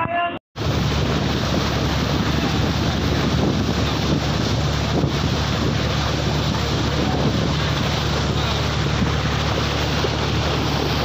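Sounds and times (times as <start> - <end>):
boat engine running: 0.6 - 11.0
sea rushing: 0.6 - 11.0
wind noise on microphone: 0.6 - 11.0.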